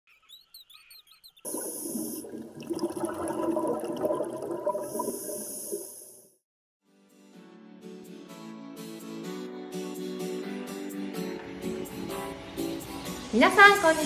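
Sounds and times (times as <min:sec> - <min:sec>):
rushing bubbling water: 0:01.5 - 0:06.2.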